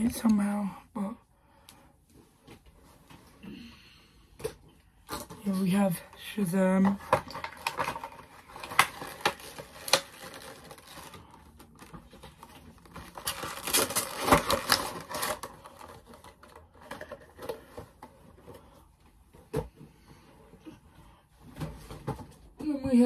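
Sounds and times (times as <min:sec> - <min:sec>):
cardboard box rustling: 0:06.8 - 0:18.4.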